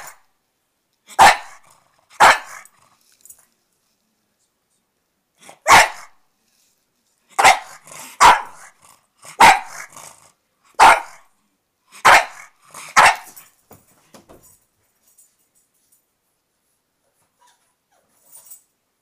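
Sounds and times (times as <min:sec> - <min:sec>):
dog barking: 0:00.0 - 0:00.3, 0:01.1 - 0:02.7, 0:05.4 - 0:06.2, 0:07.4 - 0:10.0, 0:10.7 - 0:11.3, 0:12.0 - 0:13.4
dog grumbling: 0:07.7 - 0:10.4.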